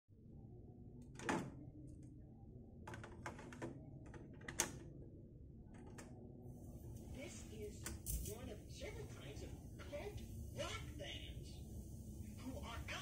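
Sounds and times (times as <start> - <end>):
low steady hum: 0.1 - 13.0.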